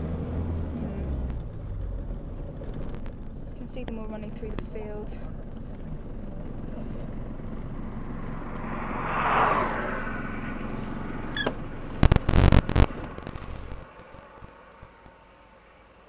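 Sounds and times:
car road noise: 0:00.0 - 0:16.0.

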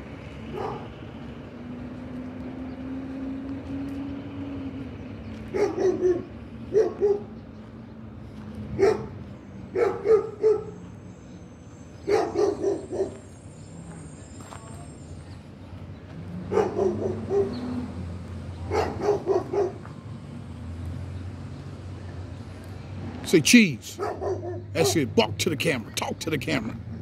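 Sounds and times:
dog barking: 0:00.5 - 0:00.9, 0:05.5 - 0:07.4, 0:08.8 - 0:10.8, 0:12.0 - 0:13.2, 0:16.5 - 0:17.6, 0:18.6 - 0:19.9, 0:24.0 - 0:25.1.

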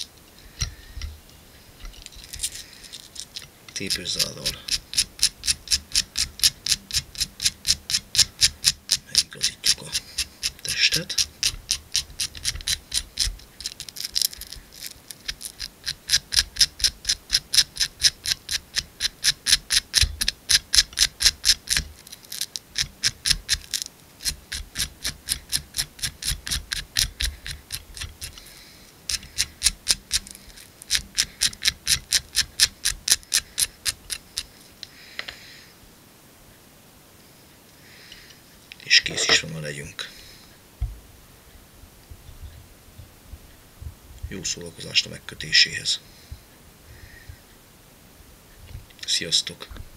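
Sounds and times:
velcro brushing scratchy rasp: 0:02.1 - 0:34.5.

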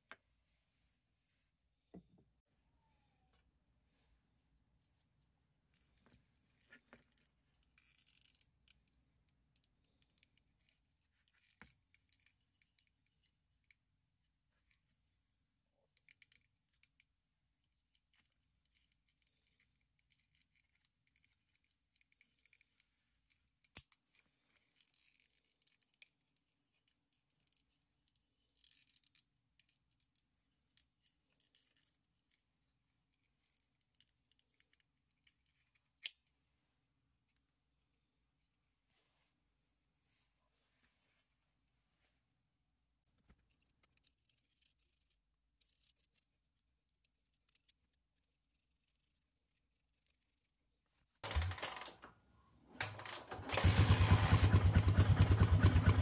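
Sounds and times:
small plastic parts clicking: 0:05.2 - 0:15.2, 0:15.8 - 0:36.4, 0:43.2 - 0:50.6, 0:51.2 - 0:56.0.

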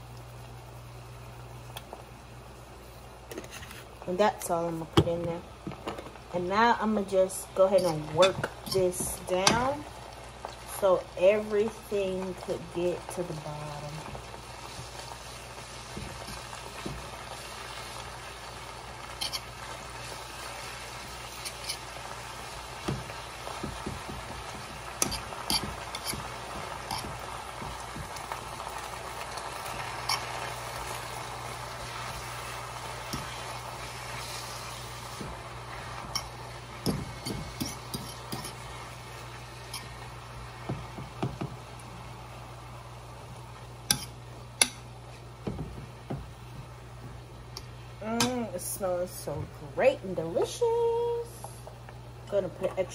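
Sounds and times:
spinach sizzling in a skillet: 0:00.0 - 0:52.9
utensils scraping a pan: 0:07.6 - 0:09.6, 0:19.1 - 0:20.2, 0:21.2 - 0:21.9, 0:24.6 - 0:28.3, 0:29.7 - 0:30.5, 0:35.8 - 0:38.7.

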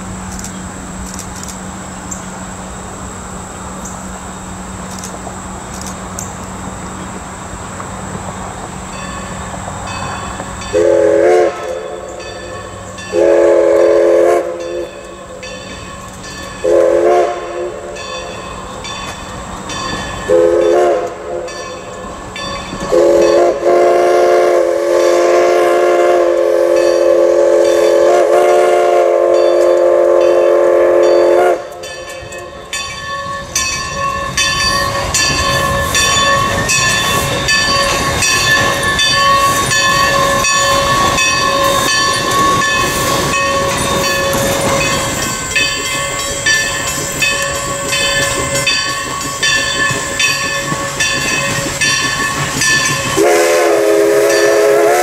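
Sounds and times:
chime steam whistle blasts: 0:08.9 - 0:55.0
rhythmic metallic clatter: 0:31.8 - 0:53.3.

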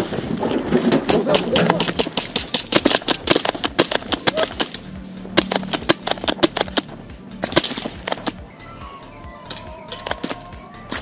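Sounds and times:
airsoft guns firing: 0:01.1 - 0:08.4.

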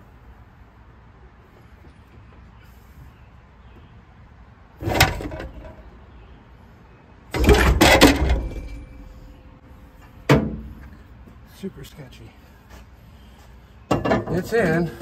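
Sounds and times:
metal clunks and clanks: 0:04.8 - 0:05.8, 0:07.3 - 0:11.0, 0:13.9 - 0:14.5.

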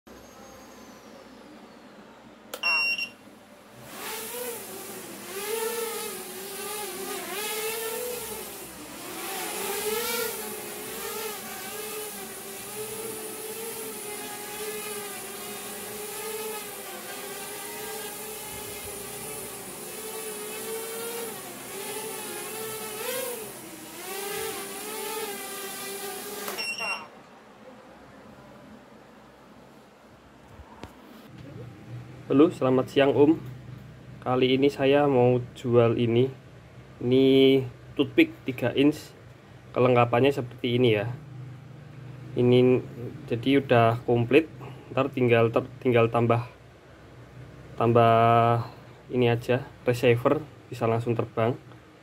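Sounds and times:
short electronic beeps: 0:02.6 - 0:03.2, 0:26.6 - 0:27.1
quadcopter motors buzzing: 0:03.7 - 0:27.1.

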